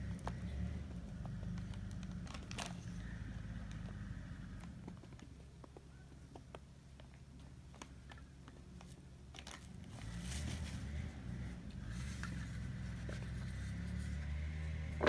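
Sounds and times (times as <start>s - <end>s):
rustling scrape: 9.4s - 15.0s.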